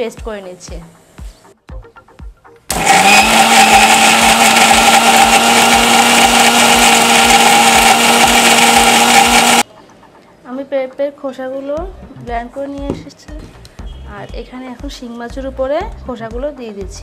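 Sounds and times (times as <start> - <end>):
mixer grinder motor: 2.7 - 9.6.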